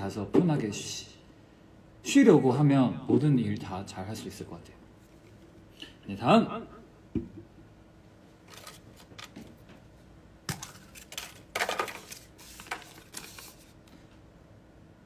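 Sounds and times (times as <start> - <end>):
paper rustling: 8.4 - 9.5, 10.5 - 13.8.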